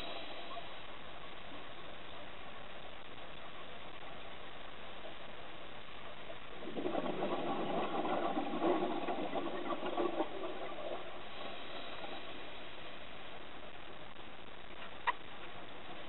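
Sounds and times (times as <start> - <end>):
underwater bubbles gurgling: 6.2 - 13.4.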